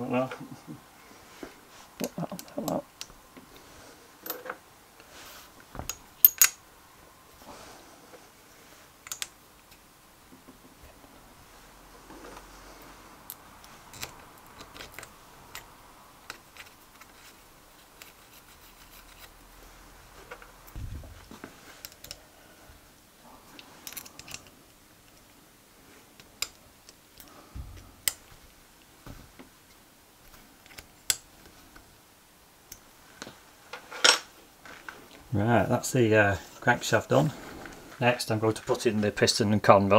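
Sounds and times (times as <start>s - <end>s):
small metal parts clicking and scraping: 5.9s - 6.6s, 9.0s - 9.8s, 13.3s - 19.4s, 21.7s - 22.2s, 23.6s - 24.6s.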